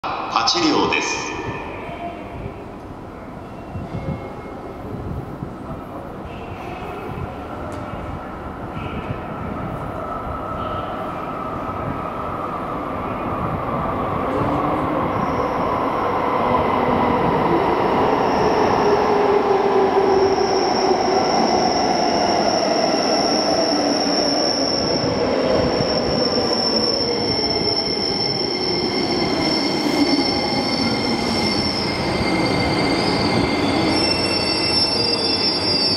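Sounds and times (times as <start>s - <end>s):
train rumbling in tunnel: 0.0s - 35.9s
train wheel squeal: 20.2s - 35.9s.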